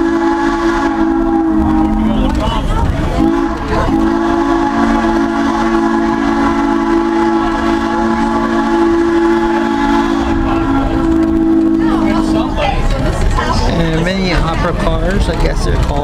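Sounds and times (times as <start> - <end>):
rumble of rolling train coach: 0.0 - 16.0
steam locomotive chime whistle: 3.2 - 12.4.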